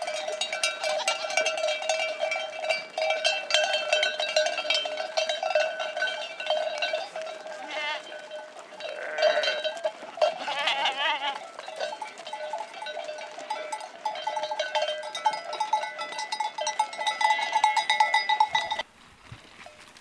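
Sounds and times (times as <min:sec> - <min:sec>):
goat bells clanking: 0:00.0 - 0:18.9
goat bleating: 0:06.9 - 0:12.3, 0:17.2 - 0:17.9.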